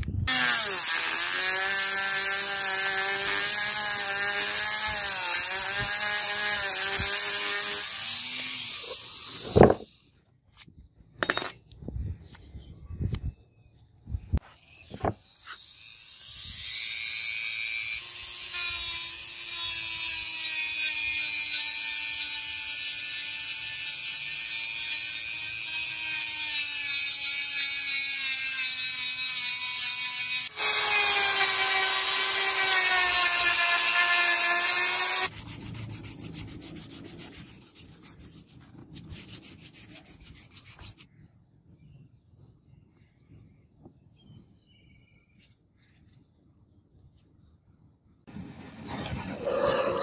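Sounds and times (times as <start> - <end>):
rotary tool sanding whine: 0.3 - 9.9, 14.8 - 41.0
sandpaper rubbing wood: 30.6 - 41.1.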